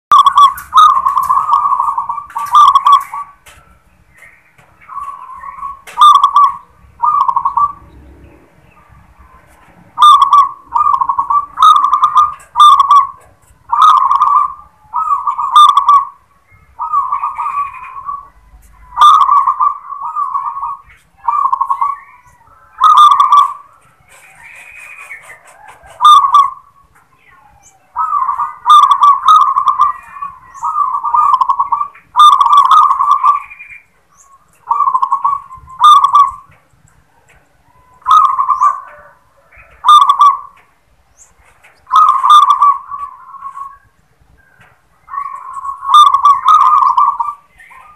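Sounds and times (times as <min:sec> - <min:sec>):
dove cooing: 0:00.1 - 0:47.9.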